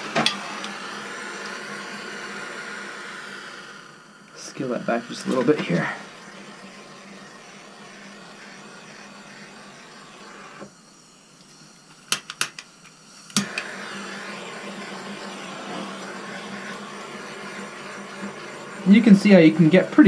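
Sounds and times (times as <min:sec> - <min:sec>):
torch igniter clicks: 0:00.0 - 0:00.8, 0:11.4 - 0:14.3
propane torch hissing: 0:00.0 - 0:20.0.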